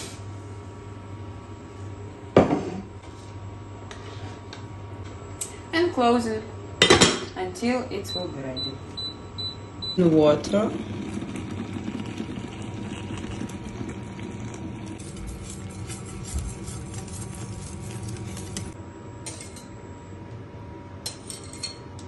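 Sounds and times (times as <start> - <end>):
faint steady hum: 0.0 - 22.0
pot of rice boiling: 9.0 - 18.8.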